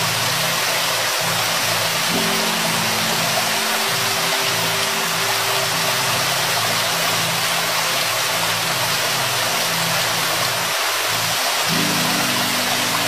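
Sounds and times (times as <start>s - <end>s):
waterfall rushing: 0.0s - 13.0s
low sustained tones: 0.2s - 10.4s.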